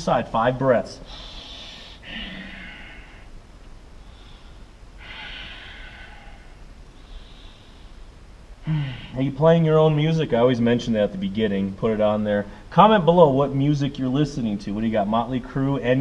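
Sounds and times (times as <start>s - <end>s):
man breathing: 1.0s - 3.4s, 4.0s - 9.2s.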